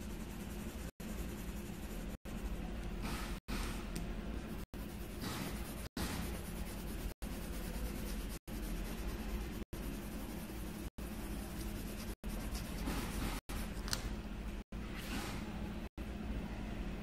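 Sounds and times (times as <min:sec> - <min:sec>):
pencil scratching on paper: 0:00.0 - 0:03.7, 0:04.6 - 0:13.7
steady low hum: 0:00.0 - 0:17.0.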